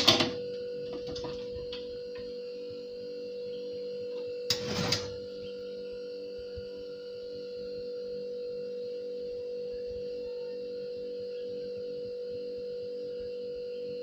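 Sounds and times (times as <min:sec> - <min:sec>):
steady hum: 0:00.0 - 0:14.0
oven rack metallic scrape: 0:04.5 - 0:05.2.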